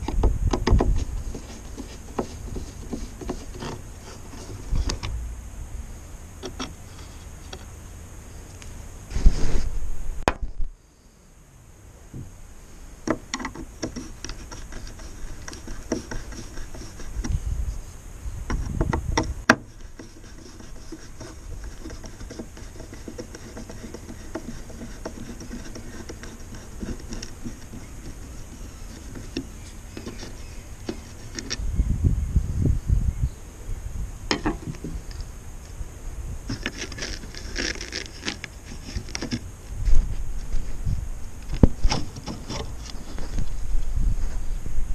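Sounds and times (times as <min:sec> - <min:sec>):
low rumbling: 0:03.5 - 0:10.8
screwdriver clicks and scrapes: 0:36.5 - 0:39.4.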